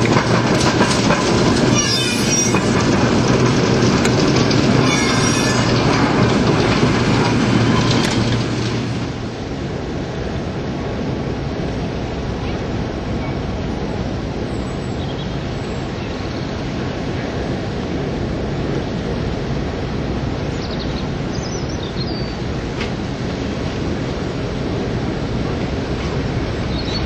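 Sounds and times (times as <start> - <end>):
locomotive diesel engine rumble: 0.0 - 27.0.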